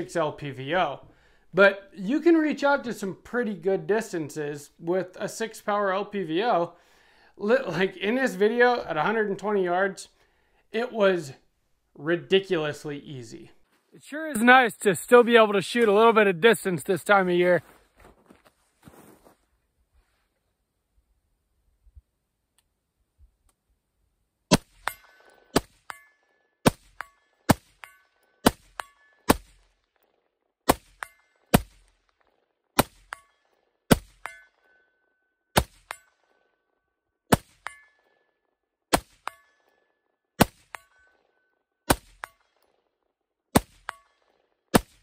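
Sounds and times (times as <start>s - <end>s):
rifle shots: 24.5s - 25.9s, 35.6s - 36.0s
bullet clanging on metal target: 24.7s - 30.2s, 30.8s - 36.6s, 37.3s - 42.9s, 43.7s - 44.4s.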